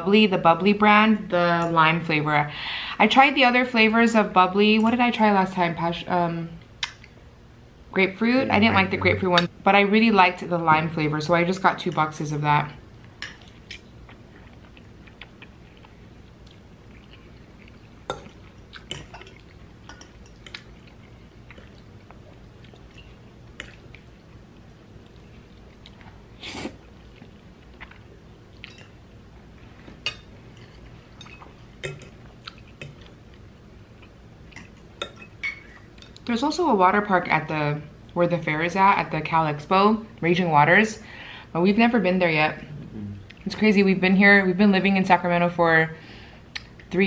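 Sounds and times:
chewing spaghetti: 13.3 - 26.2, 27.0 - 29.0, 32.3 - 34.9.

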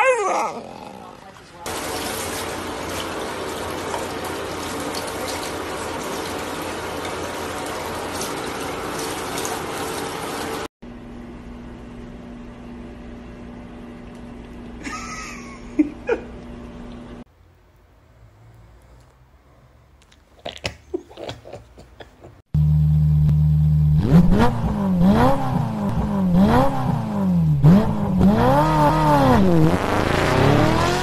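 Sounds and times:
shower head spraying water: 1.7 - 10.7
steady hum: 22.6 - 24.1.

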